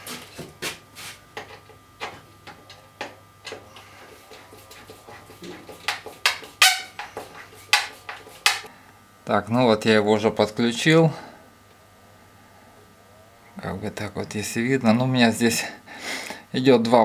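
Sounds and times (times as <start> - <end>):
scattered clicks and knocks: 4.2 - 8.7.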